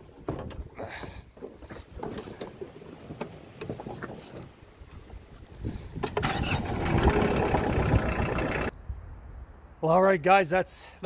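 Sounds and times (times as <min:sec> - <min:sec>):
tractor rumbling: 0:00.0 - 0:08.8.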